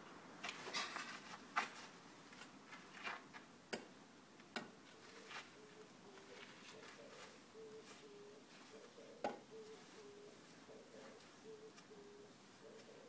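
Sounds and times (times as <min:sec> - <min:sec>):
shoes and bat scraping dirt: 0:00.4 - 0:03.5.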